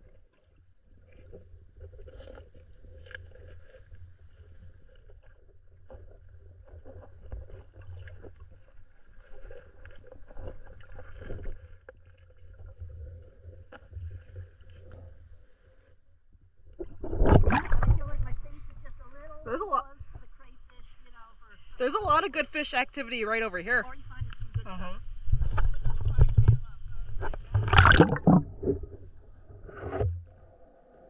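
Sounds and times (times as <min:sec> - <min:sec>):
muffled underwater river rumble: 0:00.0 - 0:21.8, 0:23.8 - 0:31.0
faint underwater clicks and knocks: 0:24.1 - 0:30.4.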